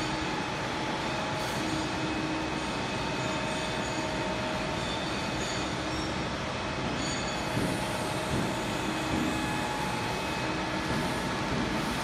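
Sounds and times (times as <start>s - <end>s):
machinery hiss and rumble: 0.0s - 12.0s.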